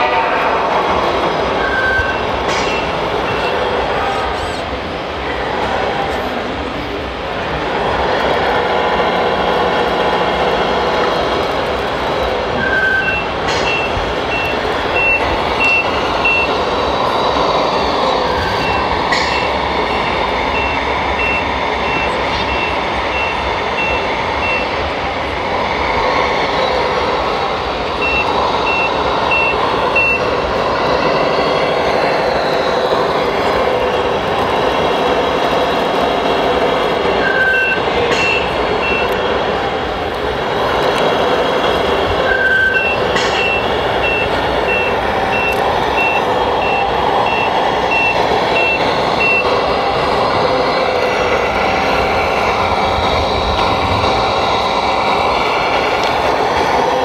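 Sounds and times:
electronic reversing beeps: 0:01.5 - 0:03.8, 0:12.5 - 0:25.0, 0:26.6 - 0:34.0, 0:37.2 - 0:39.2, 0:42.2 - 0:49.8
toy truck engine: 0:06.1 - 0:57.0.

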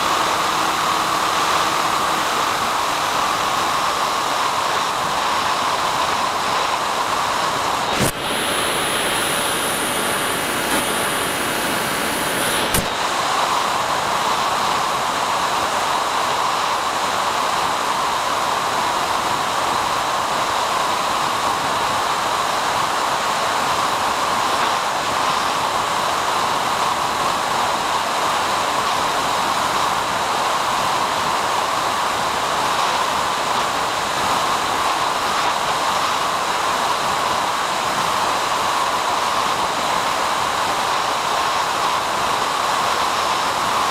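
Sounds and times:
faint high whine: 0:00.0 - 0:43.9
static hiss: 0:00.0 - 0:43.9
click: 0:08.0 - 0:08.2, 0:12.7 - 0:12.9.

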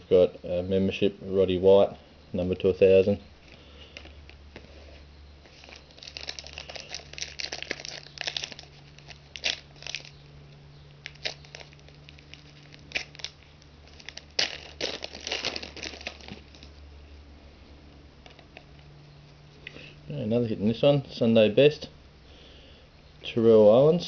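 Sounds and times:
sharp crackles: 0:03.4 - 0:16.8
foil wrapper crinkling and tearing: 0:05.4 - 0:16.8.

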